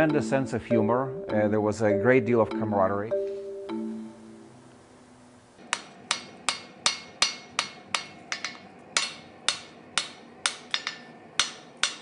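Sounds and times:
hammer striking steel on anvil: 5.7s - 12.0s.

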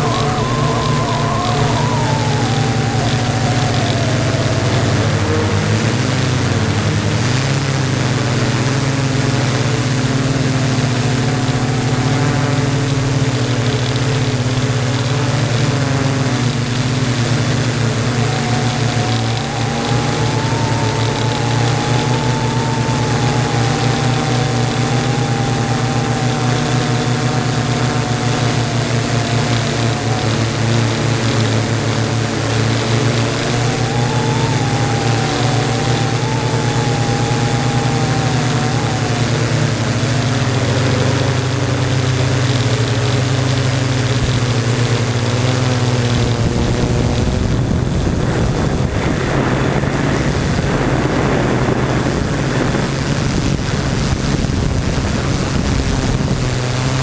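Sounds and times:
wind buffeting: 0.0s - 6.3s, 16.5s - 41.0s
drone propellers humming: 0.0s - 57.0s.

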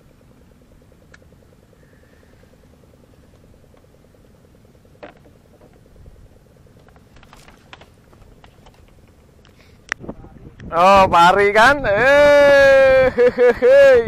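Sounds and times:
faint pulsing mechanical hum: 0.0s - 14.0s.

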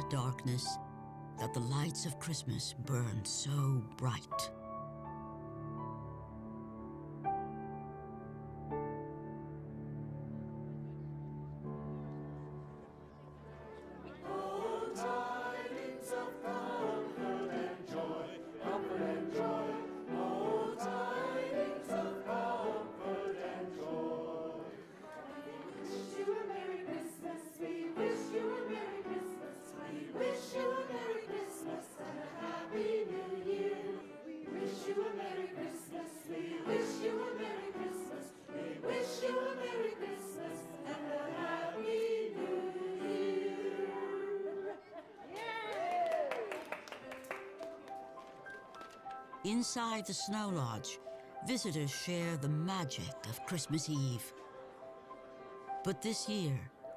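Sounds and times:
choir singing slow melody: 11.8s - 45.3s.

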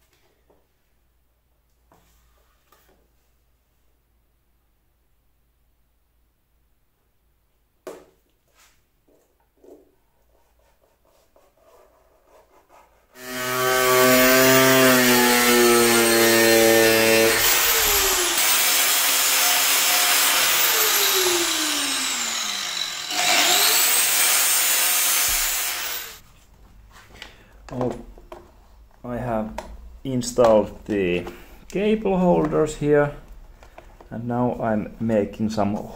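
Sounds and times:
angle grinder cutting plastic: 13.2s - 26.2s.

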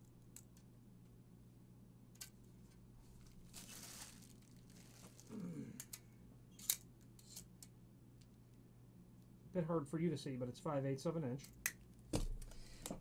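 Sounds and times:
plastic wrap crinkling: 3.0s - 5.6s.

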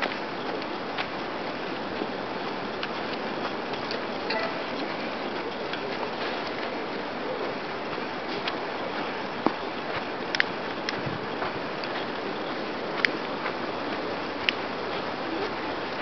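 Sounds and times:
outdoor ambient hiss: 0.0s - 16.0s
faint clicks and ticks: 7.8s - 13.6s.

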